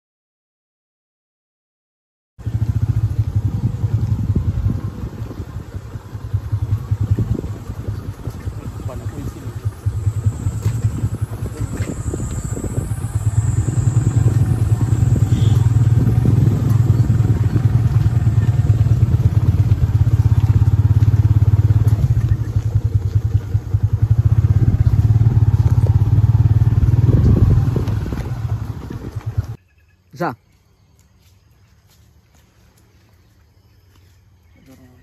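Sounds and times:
motorcycle engine running: 0:02.4 - 0:29.6.

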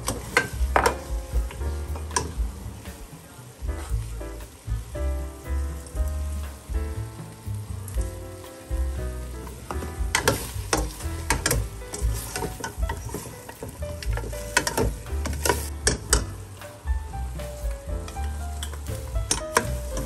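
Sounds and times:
food sizzling in a pan: 0:00.0 - 0:20.0
soft background music: 0:00.0 - 0:20.0
utensil scraping a pan: 0:09.5 - 0:16.2.

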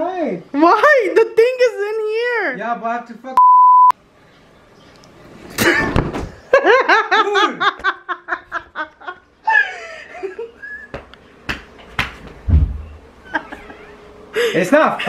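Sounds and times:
woman laughing hard: 0:06.4 - 0:11.0, 0:13.2 - 0:14.0.

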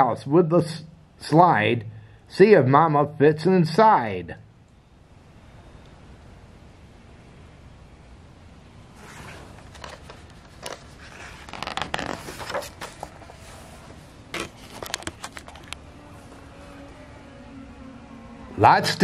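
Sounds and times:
book pages turning: 0:09.0 - 0:16.4.

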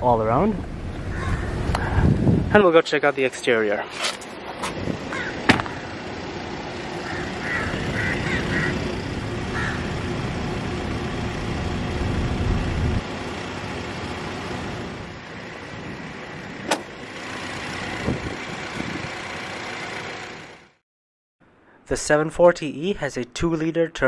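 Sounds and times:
vehicle engine running: 0:04.9 - 0:20.8
bonnet latch click: 0:16.7 - 0:16.9.

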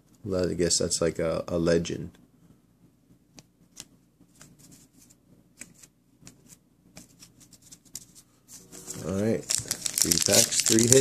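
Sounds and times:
trading cards clicking and rustling: 0:09.0 - 0:11.0.

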